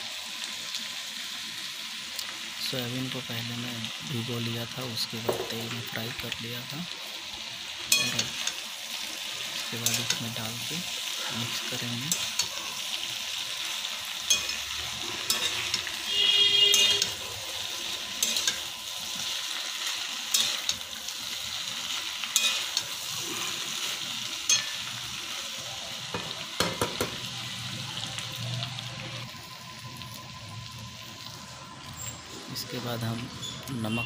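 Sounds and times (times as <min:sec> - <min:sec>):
food sizzling in hot oil: 0:00.0 - 0:34.0
spatula scraping against pan: 0:14.3 - 0:17.2, 0:22.3 - 0:24.9.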